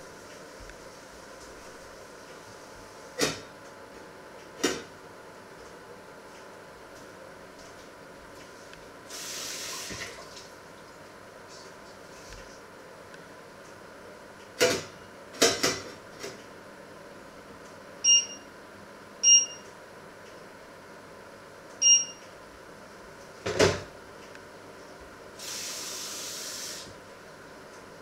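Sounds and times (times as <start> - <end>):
steady hiss: 9.0 - 10.1, 25.3 - 27.0.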